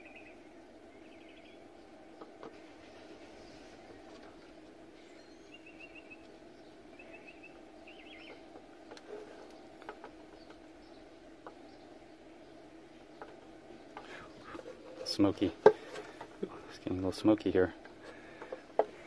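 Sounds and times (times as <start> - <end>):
bird trilling: 5.1 - 6.2, 6.9 - 8.5.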